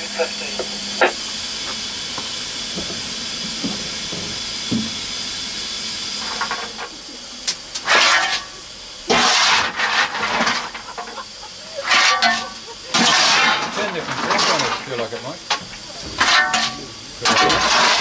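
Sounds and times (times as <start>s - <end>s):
steam hissing: 0.0s - 18.0s
loud rasping bursts of noise: 11.9s - 15.0s, 16.0s - 18.0s.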